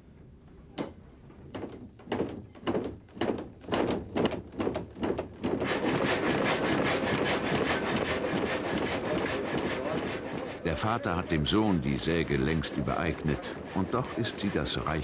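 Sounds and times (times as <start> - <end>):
water-powered frame saw running: 5.5 - 15.0.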